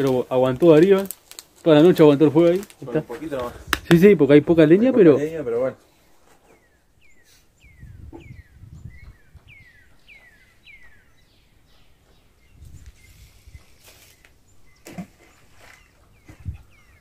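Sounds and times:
bird calling with whistled notes: 0:06.4 - 0:17.0.

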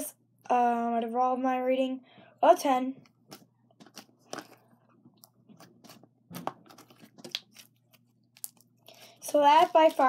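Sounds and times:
slime squishing and crackling: 0:05.3 - 0:10.0.

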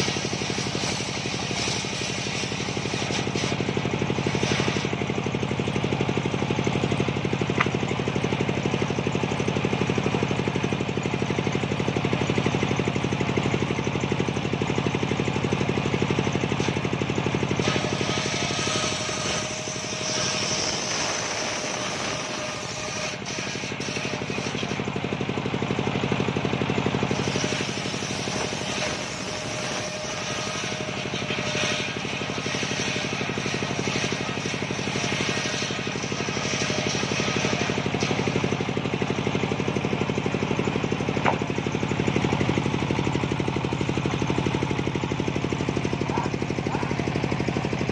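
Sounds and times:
saw blade cutting hiss: 0:00.0 - 0:05.0, 0:17.6 - 0:24.8, 0:27.1 - 0:38.8
table saw running: 0:00.0 - 0:47.9.

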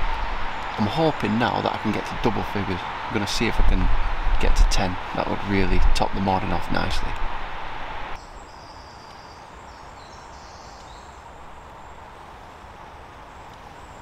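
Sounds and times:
steady background hiss: 0:00.0 - 0:14.0
faint high bird song: 0:08.2 - 0:12.3, 0:13.0 - 0:14.0.

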